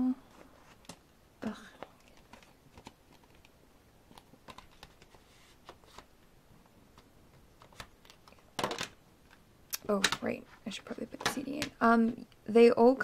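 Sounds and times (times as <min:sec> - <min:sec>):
plastic cd case clicks and taps: 0:11.2 - 0:11.8.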